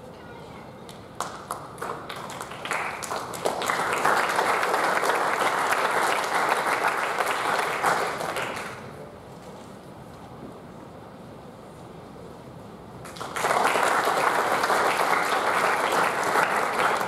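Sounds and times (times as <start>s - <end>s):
audience applauding: 1.2s - 8.9s, 13.0s - 17.0s.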